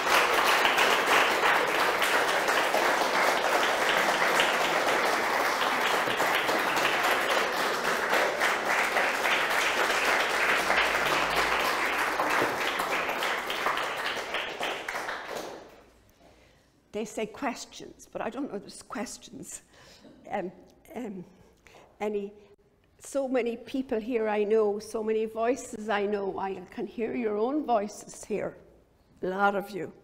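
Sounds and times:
audience applause: 0.0s - 15.8s.

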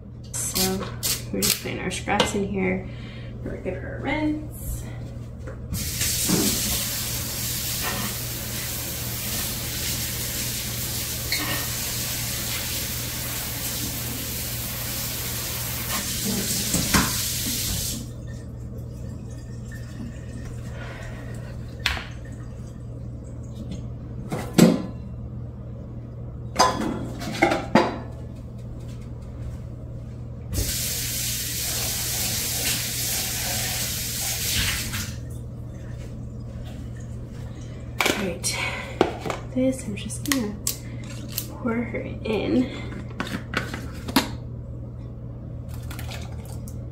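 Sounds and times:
kitchen faucet running: 5.7s - 20.6s, 30.5s - 35.3s.

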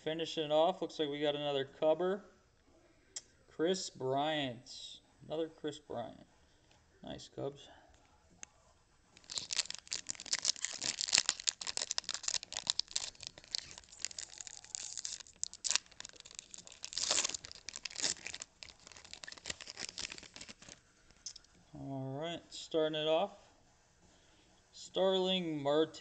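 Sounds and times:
trading cards crackling and rustling: 8.4s - 21.5s.

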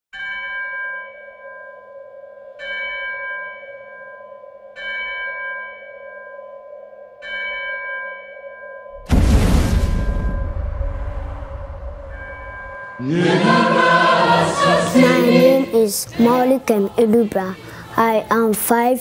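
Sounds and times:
struck bell-like tone: 9.9s - 16.4s
steady held tone: 10.0s - 16.6s.

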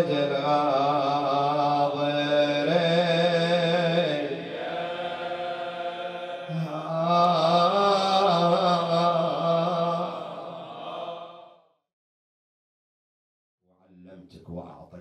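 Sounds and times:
man chanting mournfully: 0.0s - 11.5s.

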